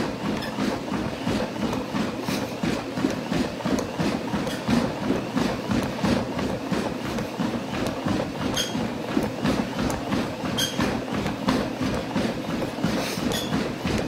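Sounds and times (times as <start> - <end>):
footsteps on a treadmill: 0.0 - 14.0
treadmill belt and motor hum: 0.0 - 14.0.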